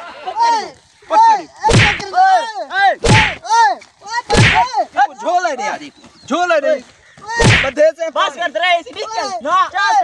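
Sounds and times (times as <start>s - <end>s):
sandal slapping a man: 1.7s - 2.1s, 3.0s - 3.4s, 4.3s - 4.7s, 7.4s - 7.8s.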